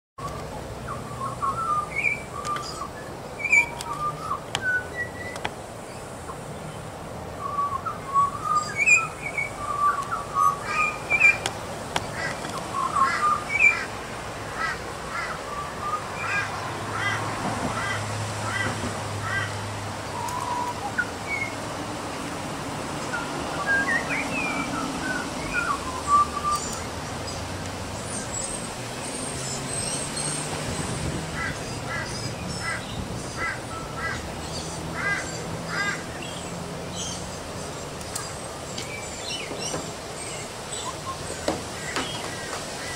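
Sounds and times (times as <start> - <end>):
magpie calling and warbling: 30.7 - 36.4.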